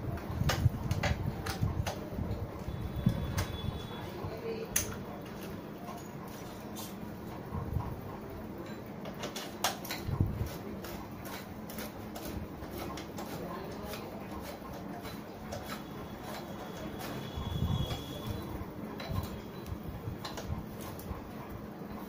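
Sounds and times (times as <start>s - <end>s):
clicks and knocks of hand tools: 0.1s - 2.1s, 8.6s - 17.2s.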